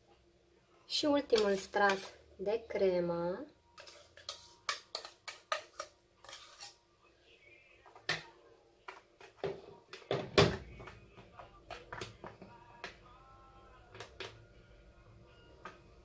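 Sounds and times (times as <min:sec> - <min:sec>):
whisk scraping a metal pot: 0:03.8 - 0:06.8.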